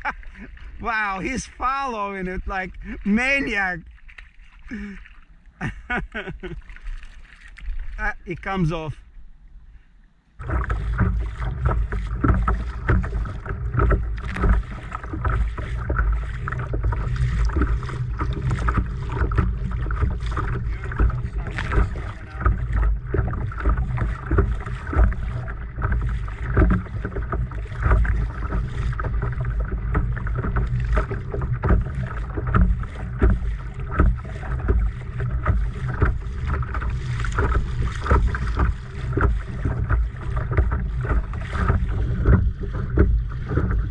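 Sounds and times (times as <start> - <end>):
waves slapping a kayak hull: 0.0 - 43.9
wind rumble on microphone: 10.4 - 43.9.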